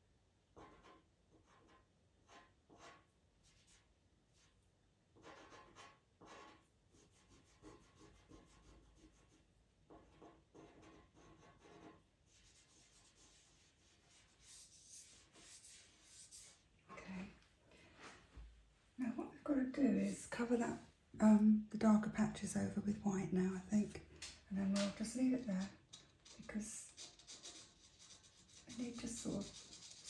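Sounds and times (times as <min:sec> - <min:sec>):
pastel scratching on paper: 0:00.6 - 0:16.6, 0:26.4 - 0:30.0.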